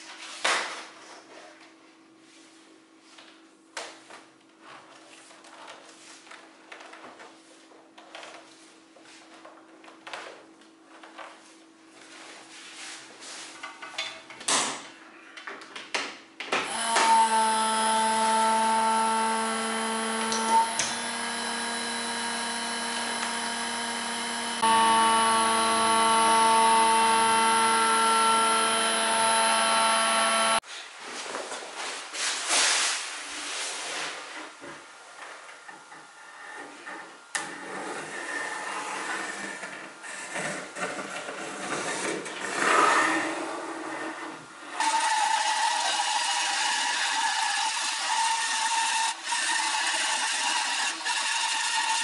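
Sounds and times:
electric vacuum pump humming: 16.6 - 30.6, 42.3 - 52.0
plastic sheeting rustling: 31.0 - 34.6.

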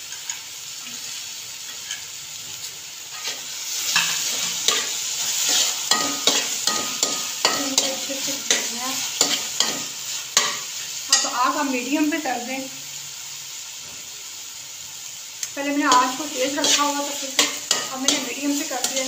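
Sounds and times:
food sizzling: 0.0 - 19.0
metal spatula scraping pan: 3.1 - 11.4, 15.9 - 19.0.

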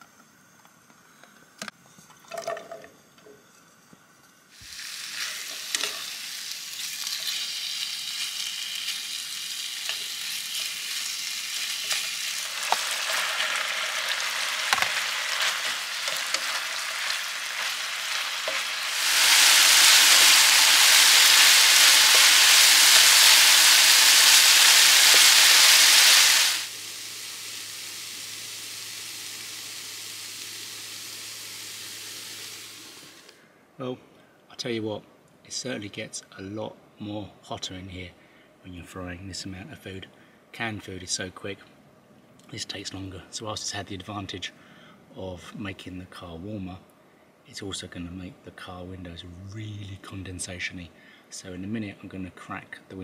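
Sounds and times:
meat sizzling in a frying pan: 4.5 - 33.3
spatula stirring: 15.3 - 23.0.

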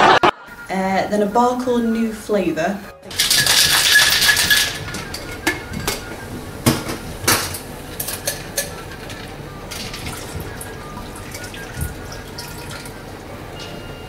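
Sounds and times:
glassware and ice clinking: 3.1 - 14.0.

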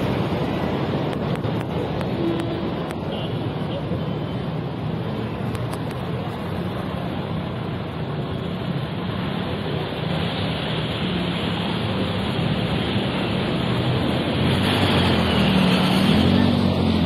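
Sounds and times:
floodwater rushing and splashing: 4.5 - 17.0.

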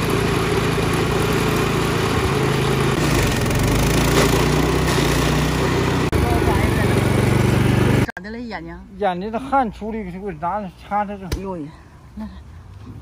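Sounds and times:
cutter wheel grinding a stump: 0.0 - 8.1
small petrol engine running: 0.0 - 8.1.

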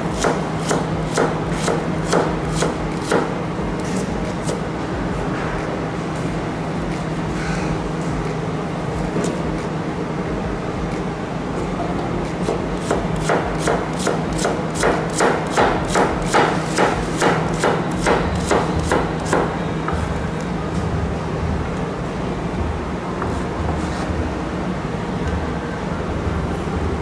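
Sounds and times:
knife slicing onion on board: 0.1 - 3.3, 12.4 - 19.5.

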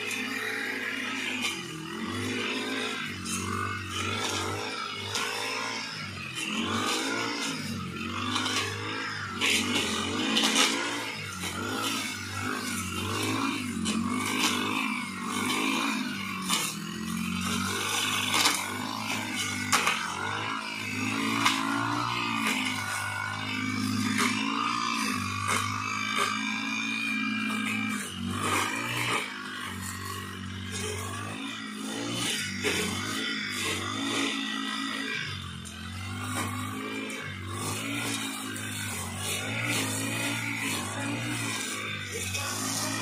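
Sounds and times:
brush cutter engine revving: 0.0 - 43.0.

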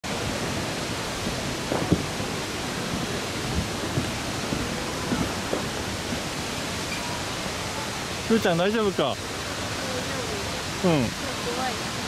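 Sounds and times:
waterfall rushing: 0.0 - 12.0
dull low thumps: 1.2 - 6.5.

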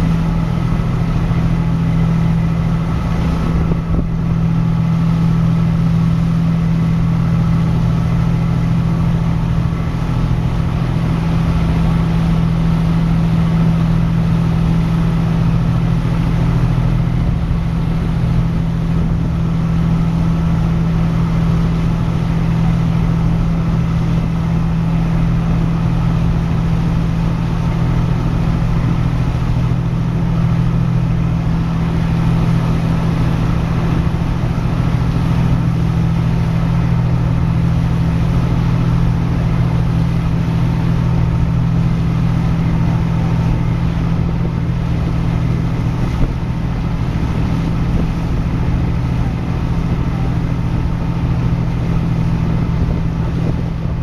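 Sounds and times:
ferry engines humming: 0.0 - 54.0
wind: 0.0 - 54.0.

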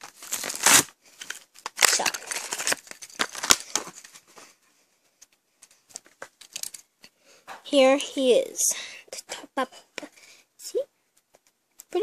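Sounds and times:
blister pack crinkling and tearing: 0.0 - 4.2.

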